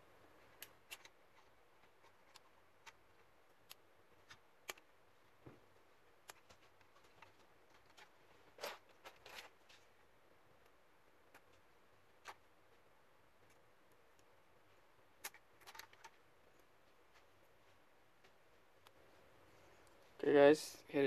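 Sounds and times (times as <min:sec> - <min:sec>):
metal tweezers clicking and scraping: 0:00.6 - 0:03.0.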